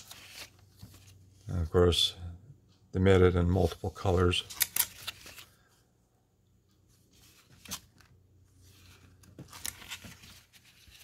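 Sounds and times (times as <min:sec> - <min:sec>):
paper pages rustling: 0:00.0 - 0:01.4, 0:04.0 - 0:05.8, 0:06.8 - 0:11.0.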